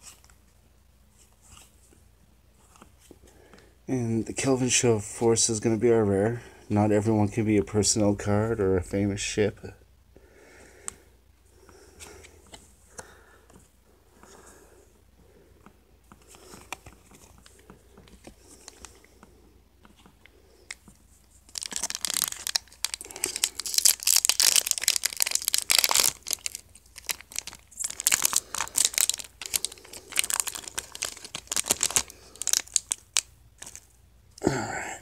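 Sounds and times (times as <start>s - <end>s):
wrappers tearing and crinkling: 21.5s - 33.9s.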